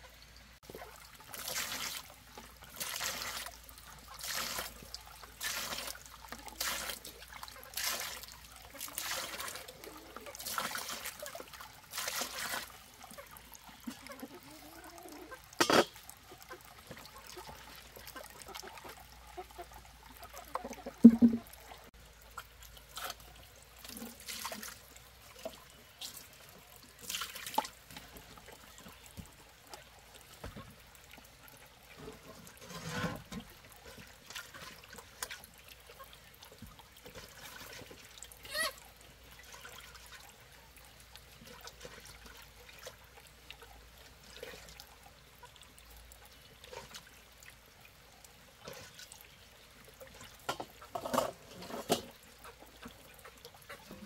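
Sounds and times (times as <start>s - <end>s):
water splashing and trickling: 0.0s - 54.0s
water pouring or scooping: 0.6s - 54.0s
sharp knocks and clatters: 21.0s - 21.5s.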